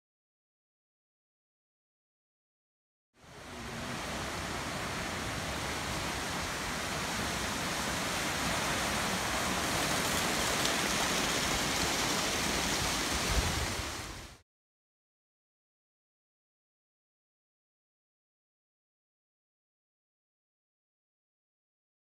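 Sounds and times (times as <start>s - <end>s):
floodwater rushing in river: 3.2s - 14.4s.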